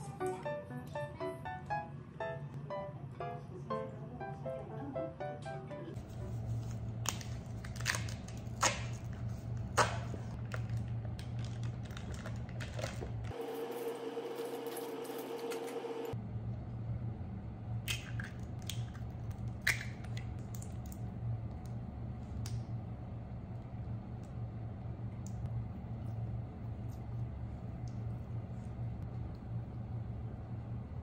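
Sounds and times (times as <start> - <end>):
low steady hum: 0.0 - 31.0
packaging rustling: 6.5 - 13.3.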